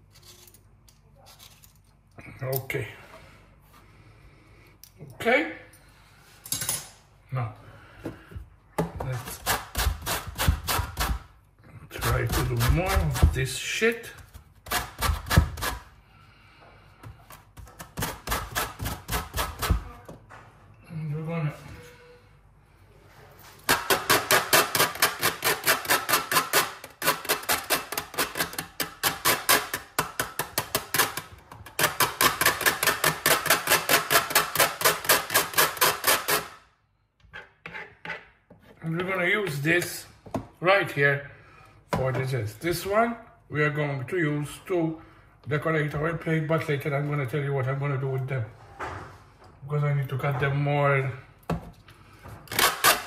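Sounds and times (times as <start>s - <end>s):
knife chopping on cutting board: 8.8s - 11.2s, 12.0s - 13.4s.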